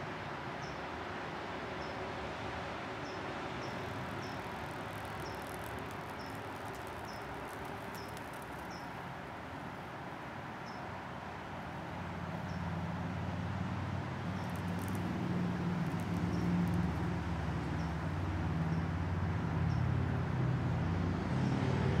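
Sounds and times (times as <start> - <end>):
background hiss: 3.0 - 18.4.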